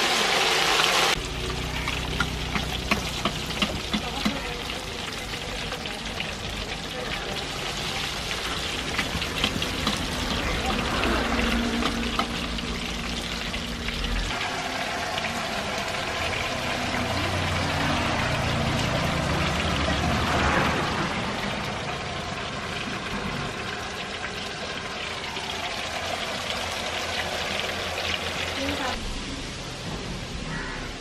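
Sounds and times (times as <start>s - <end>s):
fish deep-frying in hot oil: 0.0s - 31.0s.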